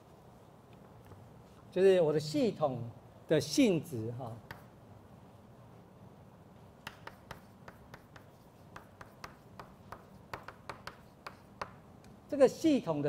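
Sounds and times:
chalk tapping and scratching: 4.4 - 4.8, 6.8 - 11.8.

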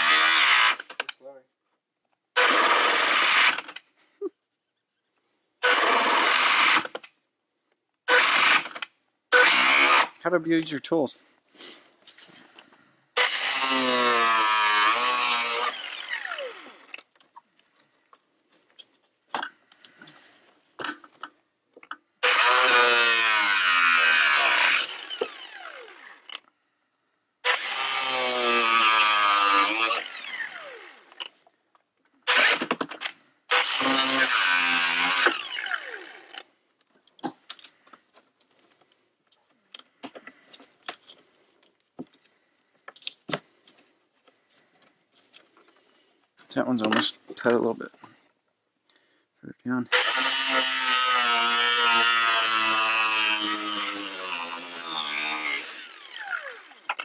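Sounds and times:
power saw cutting plastic: 0.0 - 1.1, 2.3 - 3.9, 5.6 - 7.1, 8.1 - 10.2, 13.2 - 17.1, 22.2 - 26.5, 27.4 - 31.4, 32.2 - 36.5, 49.9 - 57.0.

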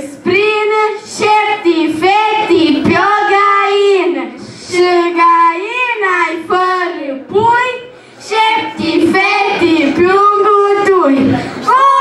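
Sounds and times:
children singing together: 0.0 - 11.8.

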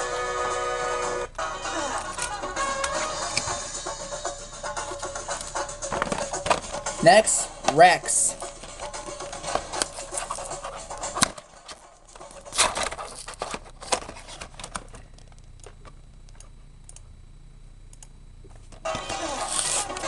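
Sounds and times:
toy handling clicks and scrapes: 8.4 - 15.0, 19.2 - 20.0.

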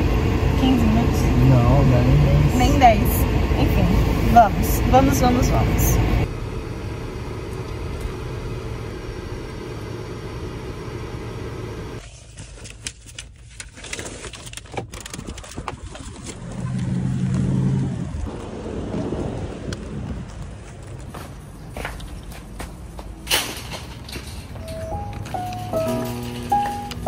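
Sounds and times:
low hum: 0.0 - 12.0
car engine rumble: 0.0 - 27.0.

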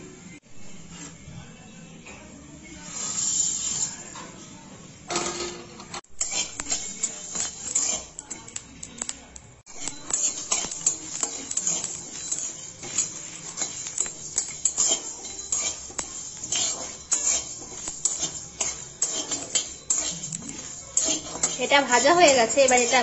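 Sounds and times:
metal spatula scraping metal pan: 2.8 - 4.4, 5.2 - 8.6, 9.6 - 23.0.

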